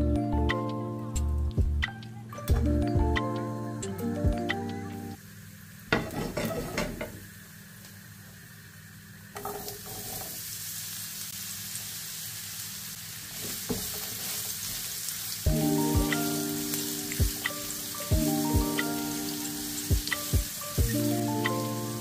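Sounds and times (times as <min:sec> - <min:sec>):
oil sizzling in a frying pan: 0:05.2 - 0:22.0.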